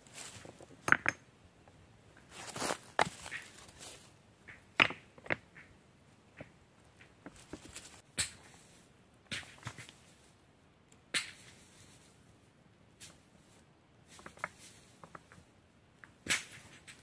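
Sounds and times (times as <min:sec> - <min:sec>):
stones clacking together: 0:00.3 - 0:01.3, 0:04.4 - 0:08.4, 0:16.0 - 0:17.0.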